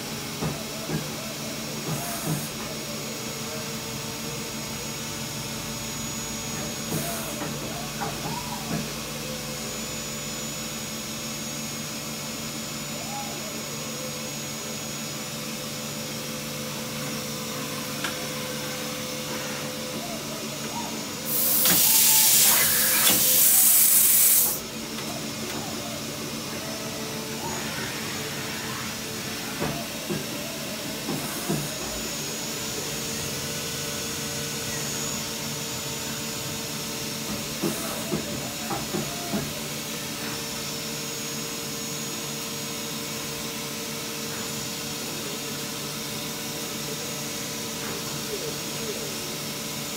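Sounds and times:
lathe humming with fixed tones: 13.6s - 49.9s
loud hiss: 21.2s - 24.6s.

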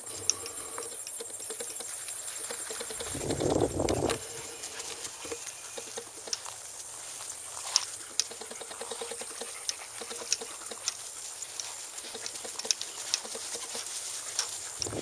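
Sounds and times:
sharp clicks: 0.2s - 4.2s, 7.8s - 11.0s, 11.6s - 15.0s
footsteps through grass: 1.9s - 15.0s.

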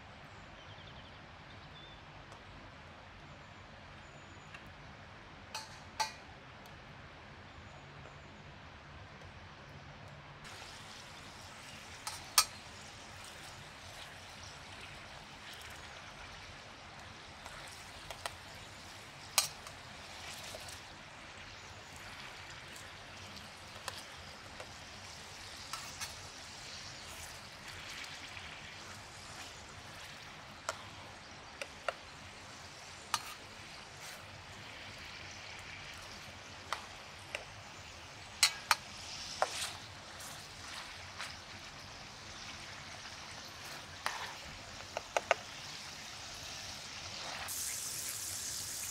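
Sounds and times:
oil sizzling in a pan: 5.5s - 6.3s, 10.4s - 48.9s
metal spatula clinking on pan: 5.6s - 6.3s, 12.0s - 12.7s, 19.4s - 19.7s, 33.1s - 33.4s, 38.4s - 38.8s.

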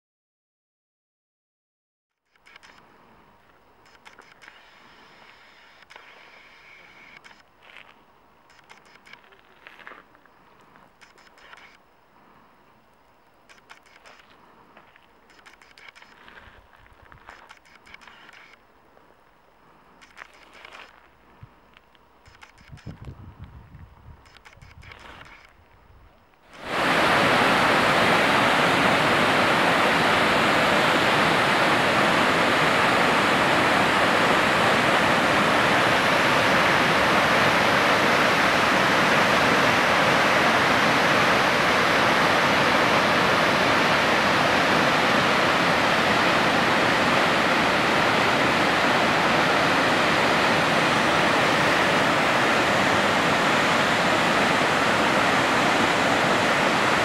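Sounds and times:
waterfall rushing: 26.6s - 57.0s.

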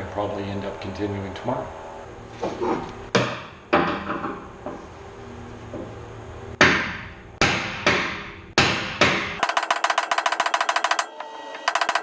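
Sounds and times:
hammer striking steel tool: 6.6s - 12.0s.

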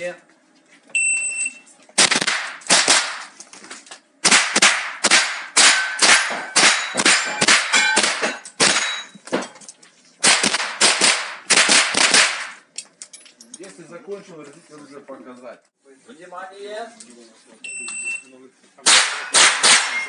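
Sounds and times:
rifle shots echoing indoors: 2.0s - 3.3s, 4.2s - 8.9s, 10.2s - 12.6s, 18.8s - 20.0s.

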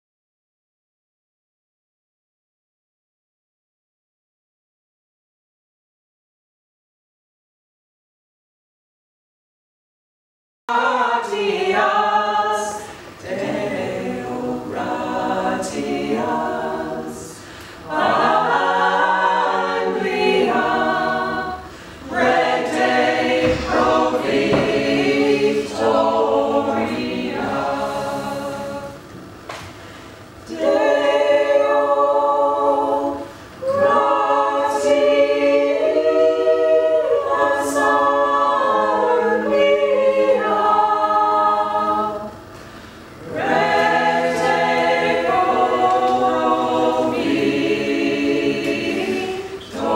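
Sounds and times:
mixed choir singing a cappella: 10.7s - 49.9s.

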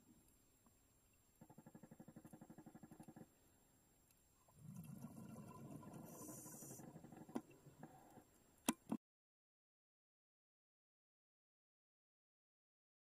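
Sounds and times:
underwater gurgling and bubbles: 4.4s - 9.0s.

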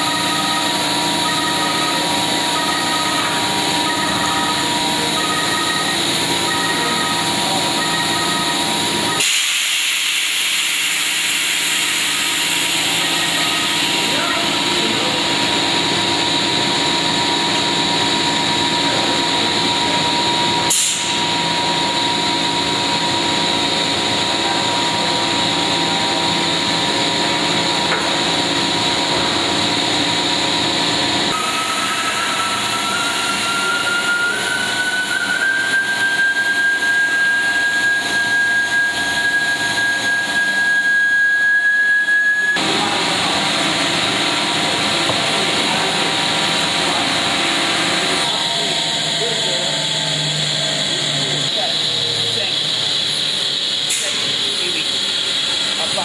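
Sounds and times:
thin whistle rising in pitch: 0.0s - 10.1s, 10.7s - 15.2s, 31.3s - 42.8s
machine mechanical hum: 0.0s - 56.0s.

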